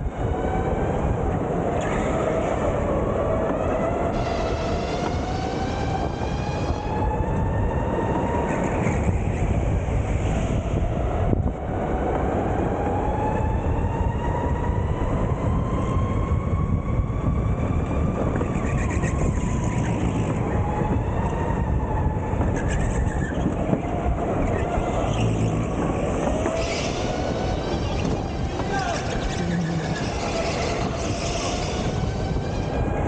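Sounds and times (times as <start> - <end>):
go-kart rumble: 14.5 - 33.0.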